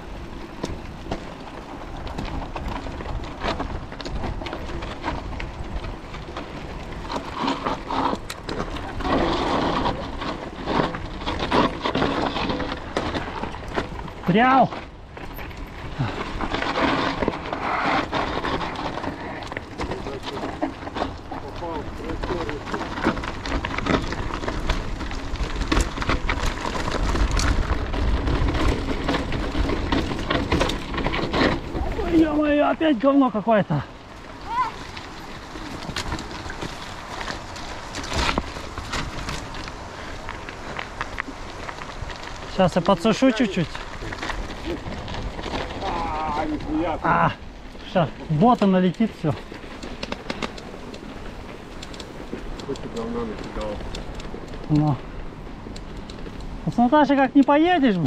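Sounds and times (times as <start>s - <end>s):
wind rumble on microphone: 0.0s - 32.6s
bike rattling: 0.0s - 58.0s
tyres crunching over stones: 0.0s - 58.0s.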